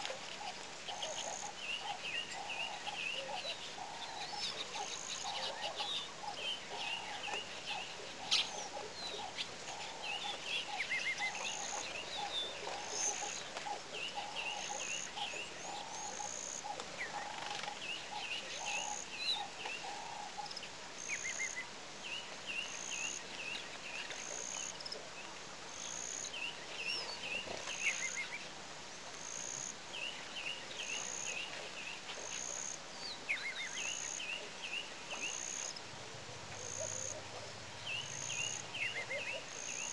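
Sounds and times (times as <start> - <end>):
birds chirping: 0.4 - 24.9.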